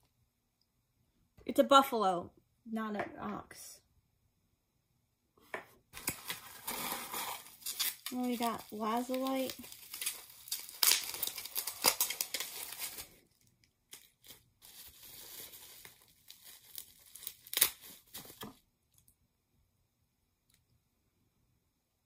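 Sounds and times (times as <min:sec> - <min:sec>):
packaging crinkling and tearing: 0:06.0 - 0:18.6.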